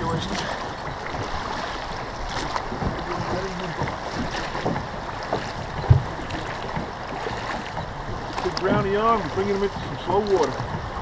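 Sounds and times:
river water rushing: 0.0 - 11.0
wind buffeting microphone: 0.0 - 11.0
low thump: 3.7 - 6.9.

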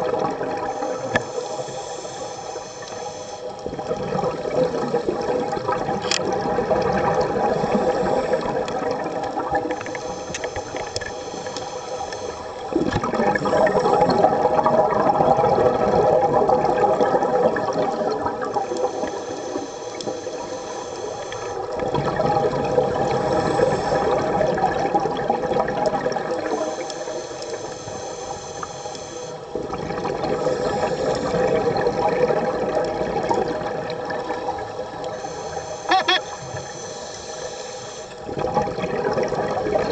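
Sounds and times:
regulator inhale hiss: 0.6 - 3.6, 7.4 - 8.8, 9.7 - 14.0, 18.6 - 21.8, 23.1 - 24.4, 26.4 - 29.6, 30.4 - 31.4, 35.0 - 38.3
exhaust bubbles rushing: 3.7 - 9.7, 12.7 - 18.6, 21.8 - 23.4, 29.6 - 34.6, 38.3 - 39.9.

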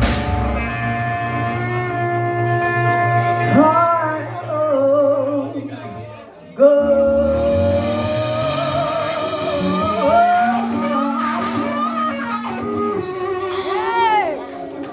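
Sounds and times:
bass guitar: 0.0 - 6.0, 6.6 - 14.9
electric guitar: 0.0 - 6.0, 6.7 - 14.9
woman singing with vibrato: 6.6 - 14.5.

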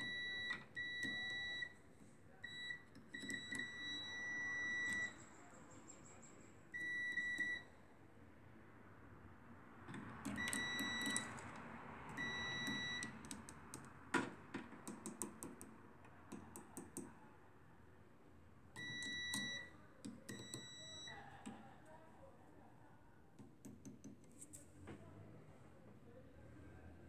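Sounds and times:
multimeter beeping: 0.0 - 1.8, 2.4 - 7.7, 10.3 - 11.4, 12.1 - 13.3, 18.8 - 21.2.

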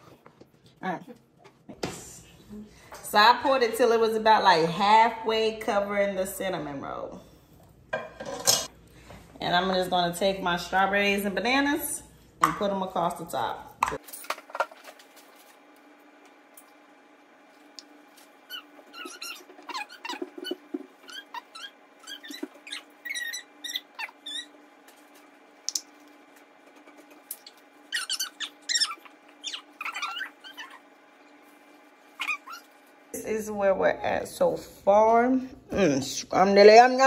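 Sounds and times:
high-pitched squeaks and chirps: 18.5 - 24.6, 27.4 - 30.8, 32.2 - 32.8.

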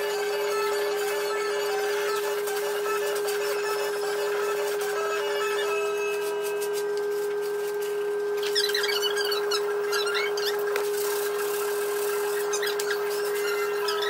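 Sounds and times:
high-pitched hum: 0.0 - 14.0
squeaky sped-up chatter: 8.4 - 14.0.

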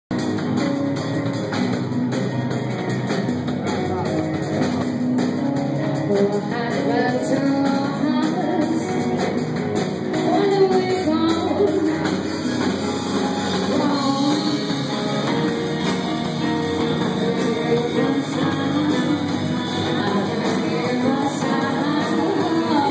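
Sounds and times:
drum kit: 0.1 - 22.9
electric guitars: 0.1 - 22.9
woman singing into a microphone: 6.0 - 9.3, 10.1 - 12.5, 13.5 - 14.8, 17.0 - 22.9.

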